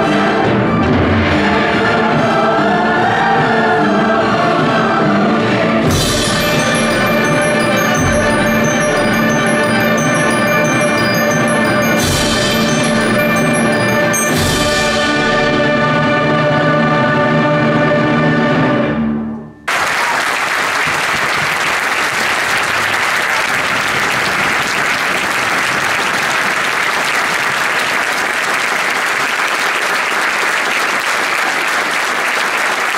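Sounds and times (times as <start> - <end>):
choir and orchestra final chord: 5.8 - 19.0
audience applause: 6.4 - 14.2, 19.7 - 32.9.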